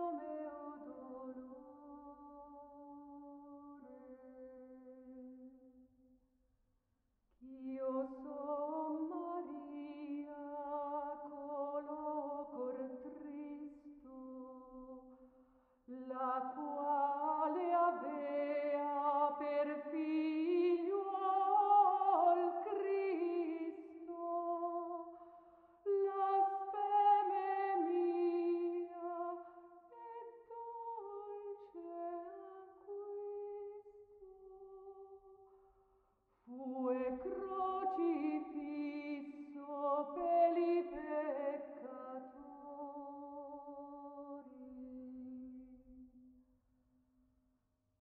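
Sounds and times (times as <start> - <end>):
solo voice singing unaccompanied: 0.0 - 5.4, 15.9 - 25.2, 25.8 - 35.3, 36.5 - 45.8.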